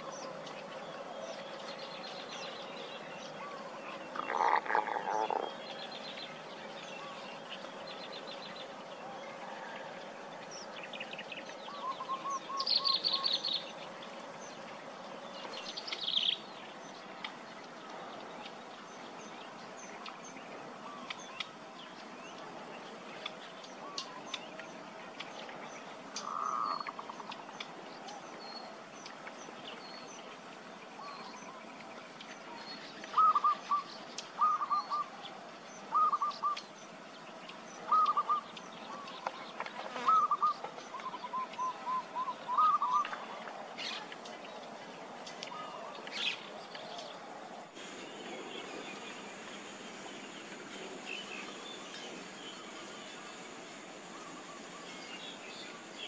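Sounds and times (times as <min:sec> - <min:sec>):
small birds chirping: 0:10.6 - 0:22.3, 0:47.8 - 0:56.0.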